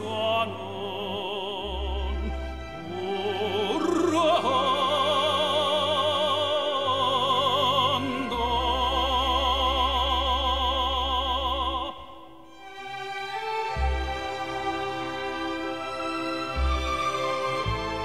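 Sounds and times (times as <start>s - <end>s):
operatic singer with vibrato: 0.0s - 12.5s
low steady accompaniment: 12.5s - 18.0s.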